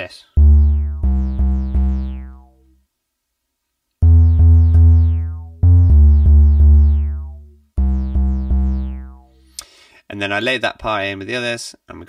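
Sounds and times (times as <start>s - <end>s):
synthesizer bass notes: 0.4s - 2.8s, 4.0s - 9.5s.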